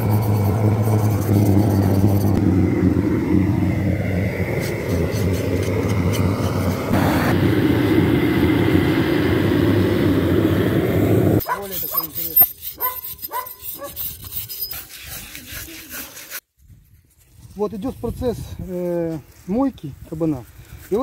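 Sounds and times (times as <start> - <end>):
gas blowtorches burning: 2.0 - 11.4.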